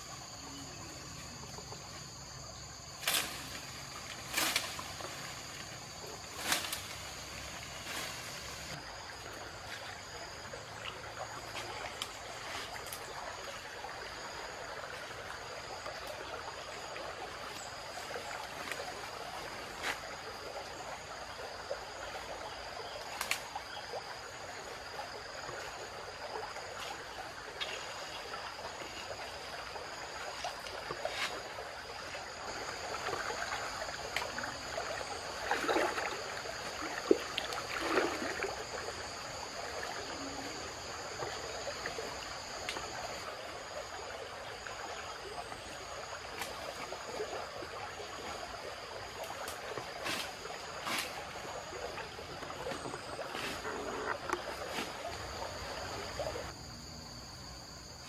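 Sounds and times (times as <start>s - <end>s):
flowing river water: 0.0s - 58.0s
bamboo brush snapping and rustling: 3.0s - 5.7s, 6.3s - 8.8s, 23.0s - 23.5s, 49.2s - 51.3s
splashing while wading: 30.2s - 40.5s.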